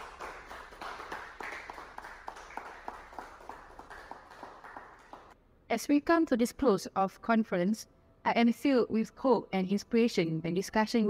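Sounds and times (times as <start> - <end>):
small group applauding: 0.0 - 5.4.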